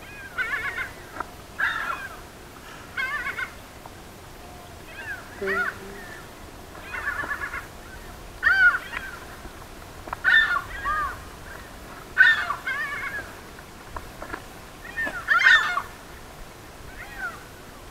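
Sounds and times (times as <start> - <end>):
crows cawing: 1.6 - 3.5, 10.2 - 11.2, 12.2 - 13.3.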